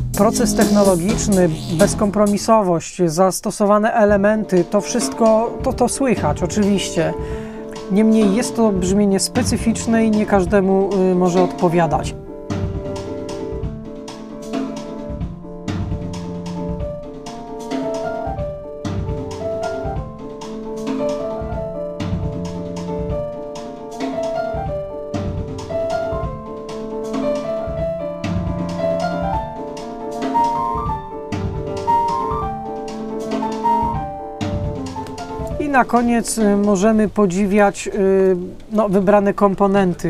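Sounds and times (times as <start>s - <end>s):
melody of held notes: 0.0s - 2.5s
steady drum beat: 0.0s - 2.7s, 4.1s - 36.8s.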